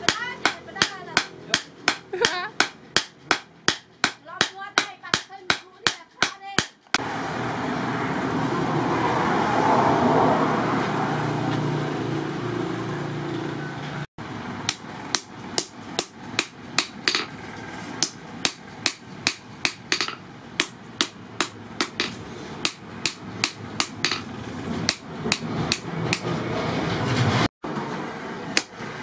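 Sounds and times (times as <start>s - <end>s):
hammer striking metal on anvil: 0.0s - 7.0s, 14.7s - 17.3s, 18.0s - 24.3s, 24.9s - 26.3s, 28.6s - 28.8s.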